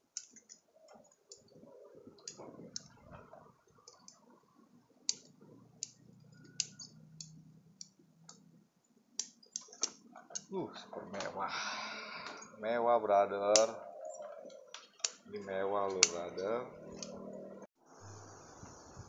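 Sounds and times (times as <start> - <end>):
pruning scissors snipping: 5.1 - 8.4, 9.2 - 10.5, 13.4 - 13.8, 15.8 - 17.3.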